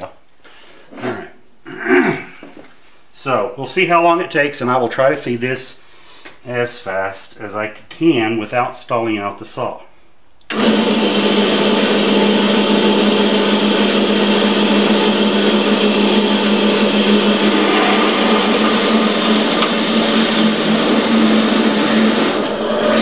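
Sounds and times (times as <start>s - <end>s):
band saw motor hum: 13.5s - 23.0s
saw blade cutting metal tubing: 16.1s - 23.0s.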